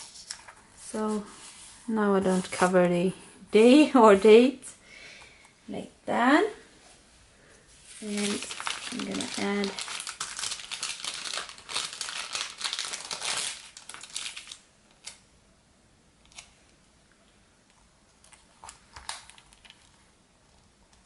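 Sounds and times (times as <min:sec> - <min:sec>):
sticker sheet crinkling: 0:08.0 - 0:15.2.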